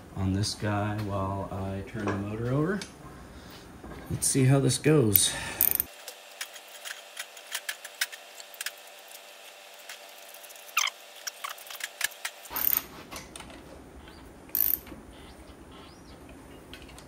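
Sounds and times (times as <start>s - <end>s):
ratchet wrench clicking: 5.6s - 5.9s, 10.8s - 12.9s, 14.5s - 14.9s.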